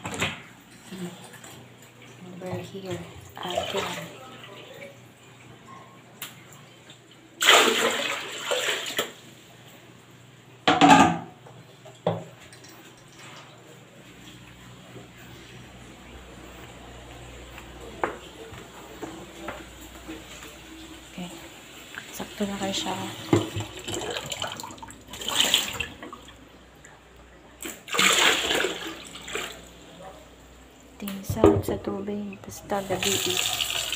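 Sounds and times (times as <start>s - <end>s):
water splashing into a sink: 6.8s - 9.2s, 21.9s - 26.4s, 27.6s - 29.9s, 32.7s - 33.9s
water pouring into a plastic bin: 7.4s - 9.2s, 27.6s - 29.7s.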